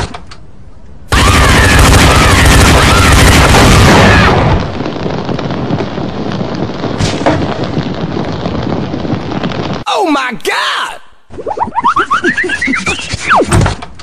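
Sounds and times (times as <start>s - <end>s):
loud explosion: 1.1s - 9.8s
sharp crack: 6.8s - 9.8s.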